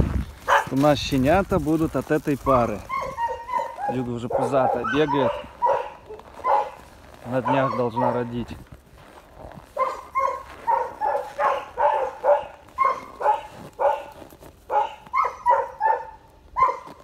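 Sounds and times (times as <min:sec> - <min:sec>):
dog barking: 0:00.5 - 0:00.8, 0:02.9 - 0:08.3, 0:09.7 - 0:17.0.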